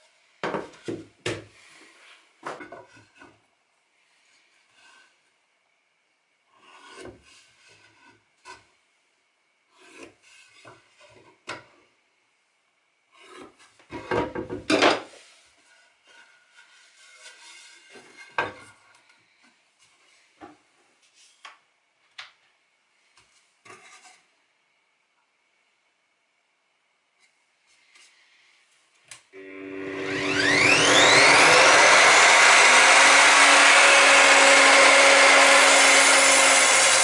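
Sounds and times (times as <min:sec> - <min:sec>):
wood scraping on saw table: 0:29.7 - 0:37.0.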